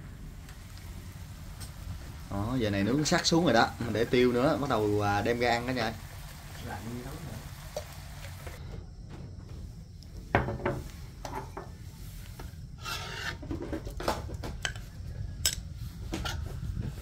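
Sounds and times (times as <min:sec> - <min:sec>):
cookware scrapes and knocks: 0:10.4 - 0:11.8, 0:12.8 - 0:14.8.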